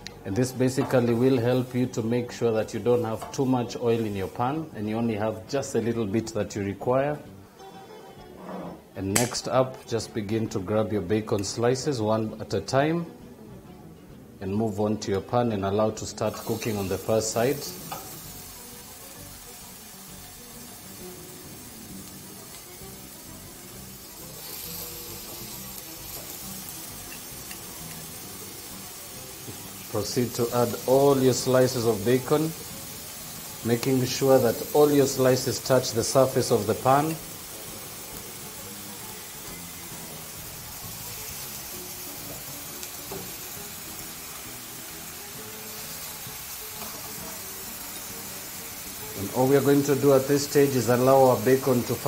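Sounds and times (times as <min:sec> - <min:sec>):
quiet background music: 0:00.0 - 0:52.0
bacon sizzling in a frying pan: 0:16.2 - 0:52.0.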